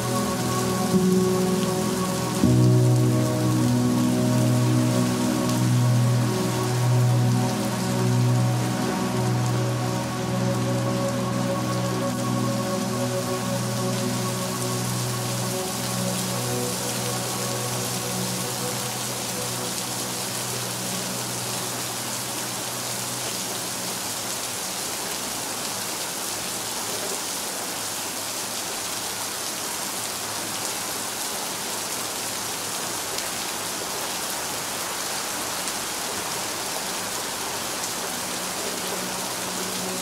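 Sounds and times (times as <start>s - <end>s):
soft held chord: 0.0s - 24.0s, 37.9s - 40.0s
heavy rain: 0.0s - 40.0s.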